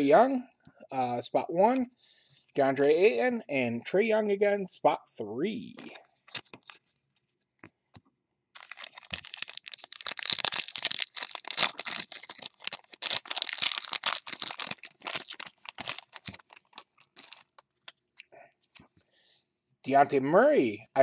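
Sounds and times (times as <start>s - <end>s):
foil wrapper crinkling: 8.6s - 17.9s.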